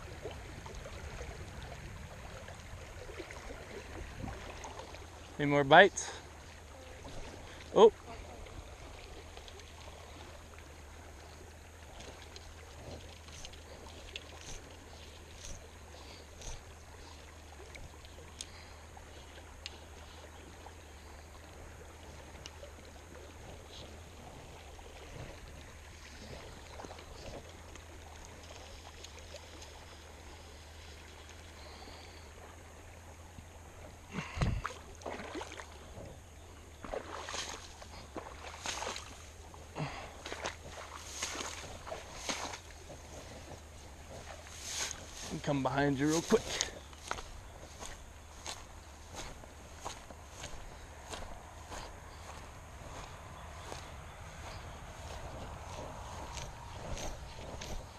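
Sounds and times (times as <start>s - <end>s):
small scattered ticks: 11.9s - 18.7s
footsteps through tall grass: 36.8s - 57.9s.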